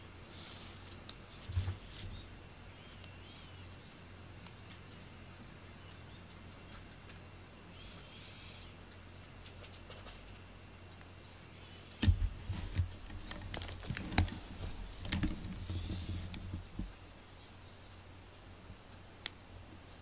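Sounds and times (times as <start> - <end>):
handling noise taps and clicks: 15.0 - 17.0.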